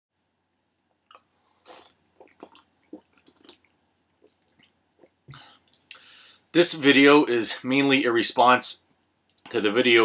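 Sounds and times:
man sipping and swallowing: 0:00.9 - 0:06.1.

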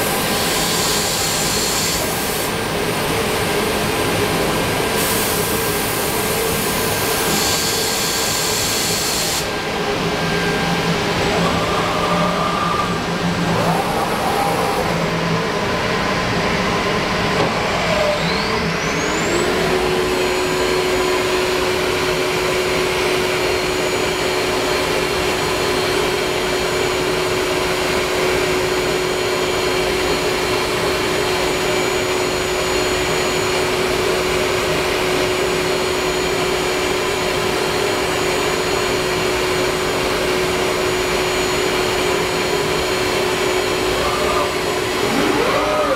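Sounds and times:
spindle whine: 0:09.5 - 0:27.0, 0:40.0 - 0:45.9.

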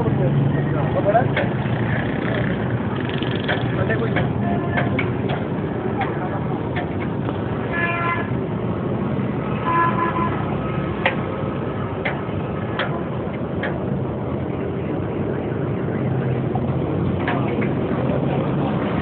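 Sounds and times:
busy street traffic: 0:00.0 - 0:19.0
vehicle horn: 0:04.4 - 0:05.0, 0:07.7 - 0:08.4, 0:09.6 - 0:10.5.

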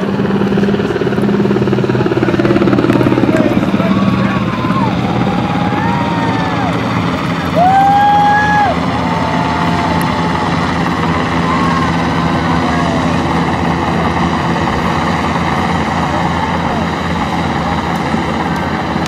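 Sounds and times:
helicopter droning: 0:00.0 - 0:19.0
crowd whooping: 0:04.0 - 0:14.3.

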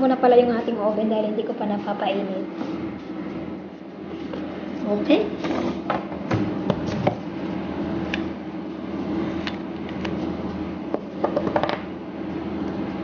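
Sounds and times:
steady hum: 0:00.0 - 0:13.0.

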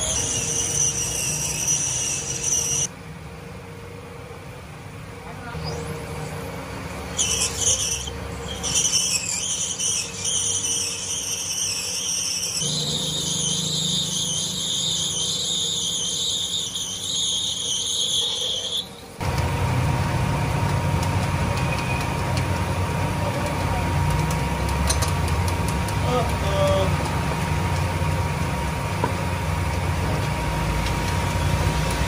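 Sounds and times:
cutting tool squealing: 0:00.0 - 0:02.9, 0:07.1 - 0:19.2.

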